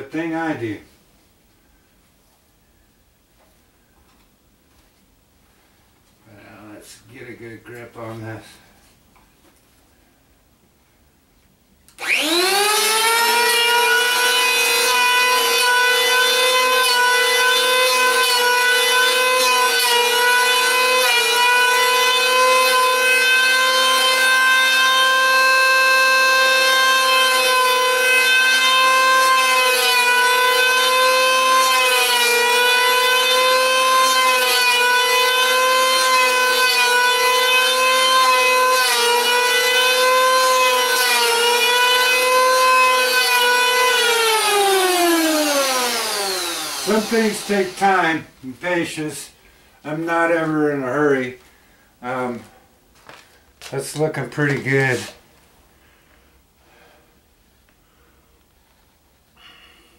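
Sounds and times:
power tool motor whining: 12.0 - 15.4, 28.8 - 48.0.

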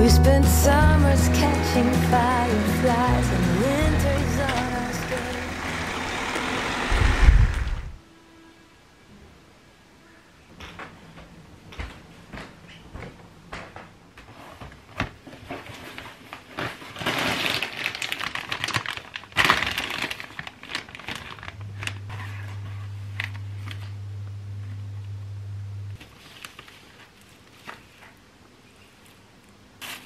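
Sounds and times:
plastic packaging crinkling: 15.2 - 23.9, 26.0 - 28.2
low steady hum: 21.2 - 29.7.

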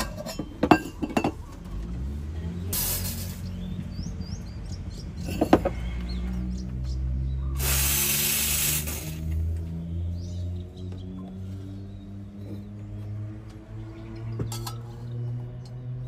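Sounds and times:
steam wand hissing: 7.5 - 9.2.

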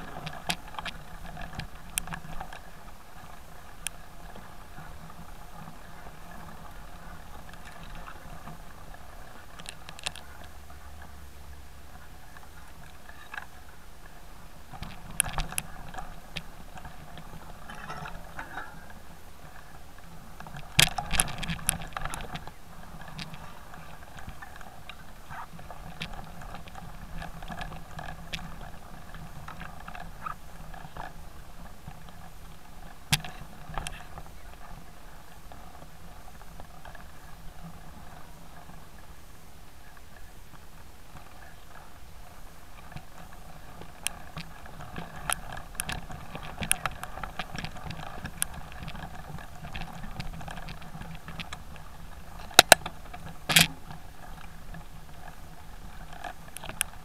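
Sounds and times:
bike rattle and tyre noise: 0.0 - 57.0.

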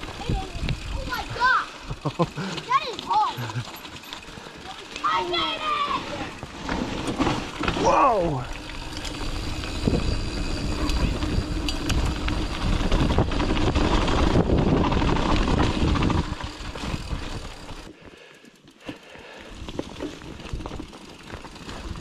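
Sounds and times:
bike rattling: 0.0 - 22.0
bike tyre noise on dirt: 0.0 - 22.0
wind on microphone: 9.6 - 17.3
scattered clicks: 10.7 - 13.2.

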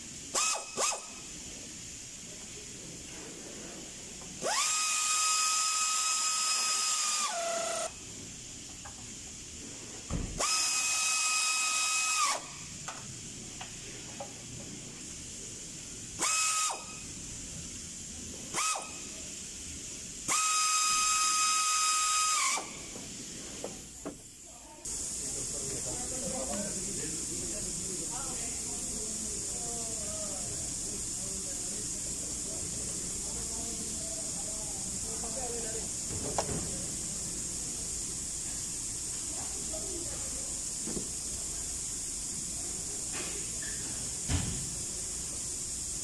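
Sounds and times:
air hiss: 0.0 - 46.0
air ratchet whining: 0.3 - 1.3, 4.4 - 8.0, 10.4 - 12.5, 16.2 - 17.1, 18.5 - 19.1, 20.2 - 23.0.

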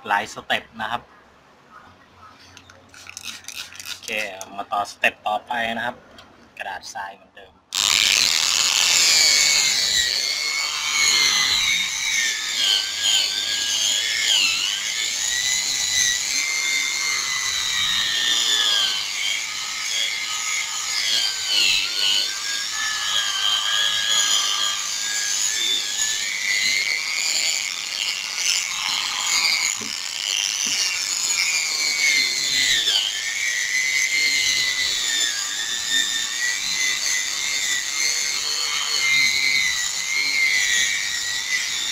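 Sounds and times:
power sander whining: 7.7 - 41.9.

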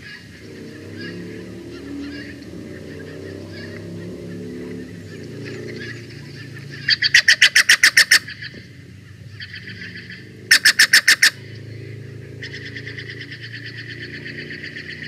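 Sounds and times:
jay harsh calls: 0.0 - 11.7.

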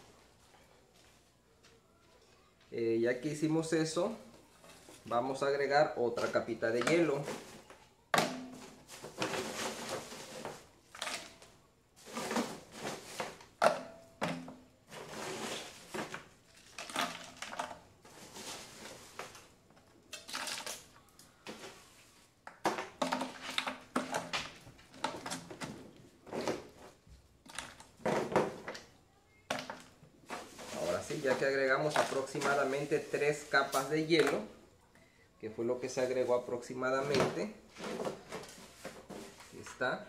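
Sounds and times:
ice cubes clattering: 16.5 - 18.8, 20.1 - 21.0.

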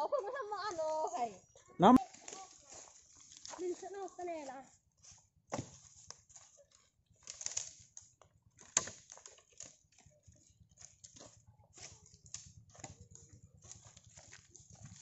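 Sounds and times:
footsteps crunching on leaves: 2.0 - 6.6
dry branches cracking and snapping: 2.1 - 3.7, 5.6 - 15.0.

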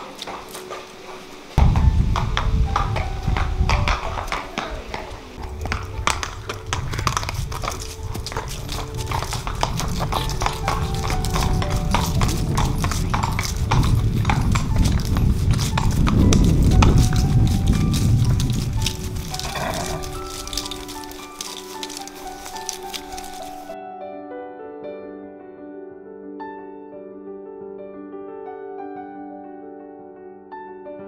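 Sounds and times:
horses' hooves clip-clopping on paving: 0.0 - 23.8.

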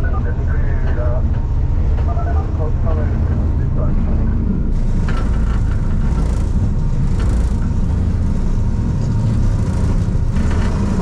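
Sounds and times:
faint hum: 0.0 - 11.0
lift low rumble: 0.0 - 11.0
light rattles: 4.7 - 11.0.

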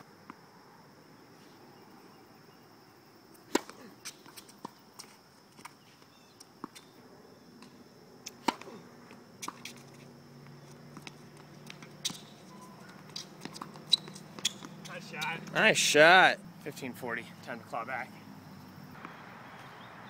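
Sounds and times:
racket hitting tennis ball: 3.4 - 5.1, 7.6 - 15.6.

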